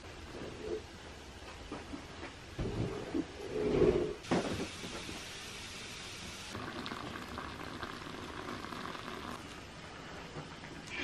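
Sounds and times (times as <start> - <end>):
boiling water hiss: 3.8 - 9.9
hot water pouring into teapot: 4.5 - 9.6.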